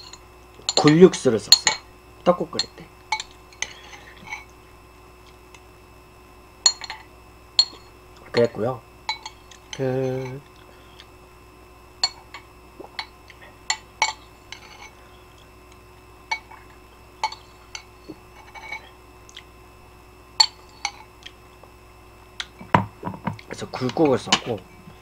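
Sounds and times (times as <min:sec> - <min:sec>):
metal spoon clinking ceramic bowl: 0:00.0 - 0:01.9, 0:02.6 - 0:04.5, 0:06.7 - 0:10.4, 0:12.0 - 0:15.0, 0:16.3 - 0:16.6, 0:17.2 - 0:18.9, 0:20.4 - 0:21.1.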